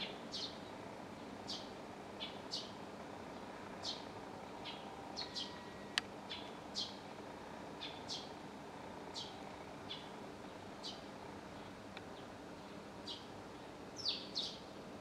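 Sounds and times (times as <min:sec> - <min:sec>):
sparrow chirping: 0:00.0 - 0:00.7, 0:01.4 - 0:02.8, 0:03.8 - 0:07.0, 0:07.8 - 0:08.4, 0:09.1 - 0:10.1, 0:10.8 - 0:13.3, 0:14.0 - 0:14.6
low background hum: 0:00.0 - 0:15.0.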